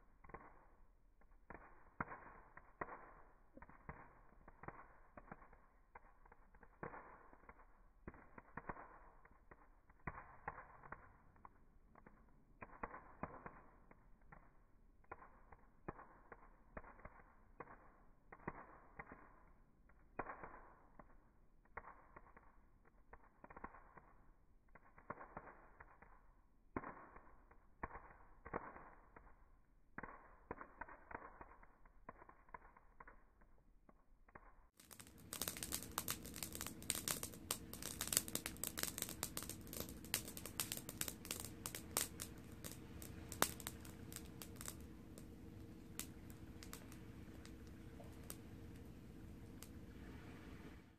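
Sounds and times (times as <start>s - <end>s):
campfire crackling and popping: 0.0s - 50.9s
steady low hum: 35.1s - 50.9s.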